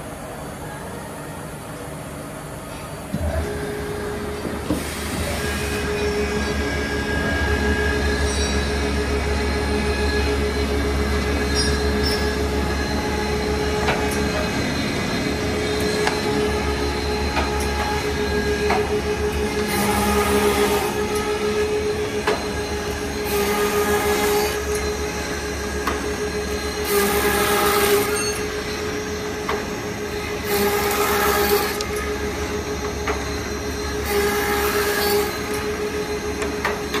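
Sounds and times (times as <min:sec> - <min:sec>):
machine cutting wooden slat: 0:15.4 - 0:24.9, 0:25.8 - 0:28.5, 0:30.4 - 0:35.7.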